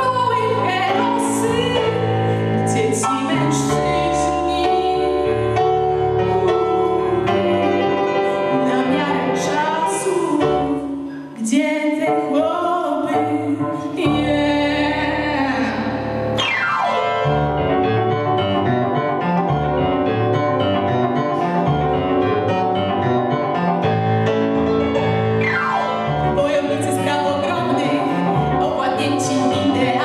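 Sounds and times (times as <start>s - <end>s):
woman singing into microphone: 0.0s - 16.4s, 26.3s - 30.0s
piano accompaniment: 0.0s - 30.0s.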